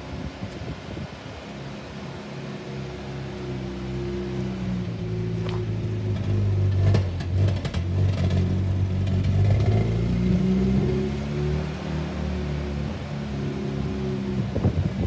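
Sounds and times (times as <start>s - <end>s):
engine revving: 2.8s - 15.0s
engine clatter: 3.0s - 15.0s.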